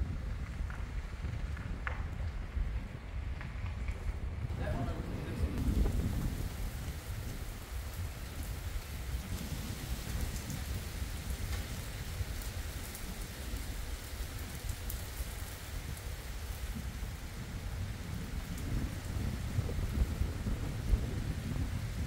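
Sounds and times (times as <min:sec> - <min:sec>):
low rumble: 0:00.0 - 0:08.8
steady rain on road: 0:00.0 - 0:22.0
raindrop ticks: 0:00.1 - 0:22.0.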